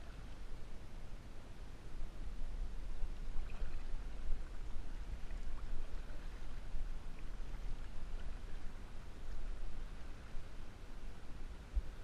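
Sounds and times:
paddle splashing water: 0:03.2 - 0:10.4.

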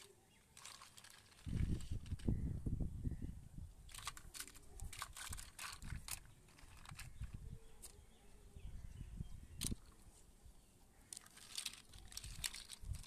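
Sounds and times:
plastic toys clicking and clattering: 0:00.0 - 0:02.3, 0:03.9 - 0:08.0, 0:09.6 - 0:10.0, 0:11.1 - 0:13.0.

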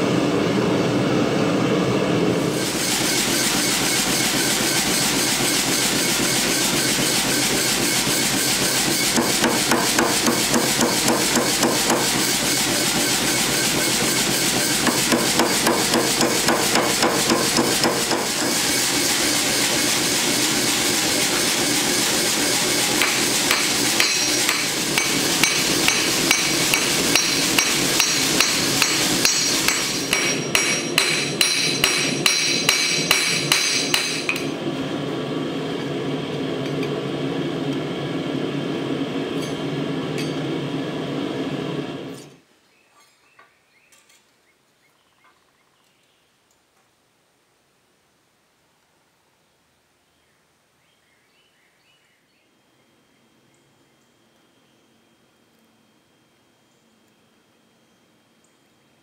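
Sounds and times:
hammer striking hot steel: 0:03.0 - 0:18.7, 0:22.7 - 0:34.6, 0:40.2 - 0:40.4
anvil ringing: 0:23.0 - 0:34.6.

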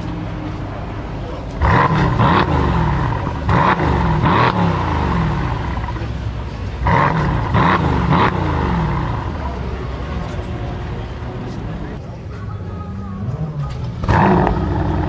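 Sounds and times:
car engine idling and revving: 0:00.0 - 0:15.0.

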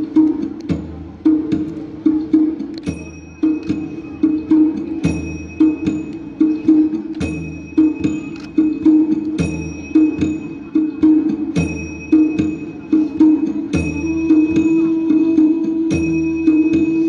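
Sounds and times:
flute playing low melody: 0:13.4 - 0:17.0.

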